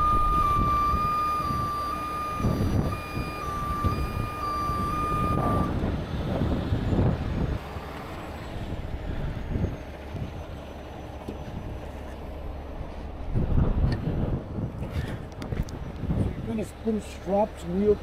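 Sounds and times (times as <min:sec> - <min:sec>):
truck warning beeper: 0:00.0 - 0:05.9
diesel engine running: 0:00.0 - 0:18.0.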